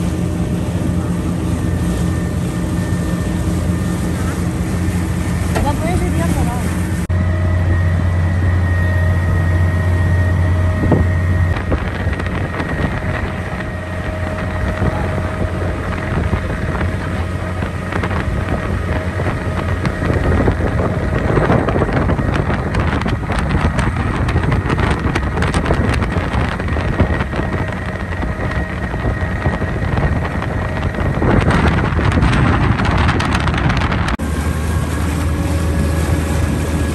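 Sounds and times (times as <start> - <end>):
boat motor humming: 0.0 - 36.9
wind buffeting microphone: 0.0 - 36.9
thin steady whine: 7.0 - 23.1.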